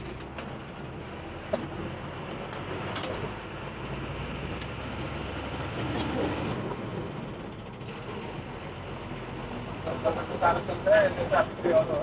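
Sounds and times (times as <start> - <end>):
bus rumble inside cabin: 0.0 - 12.0.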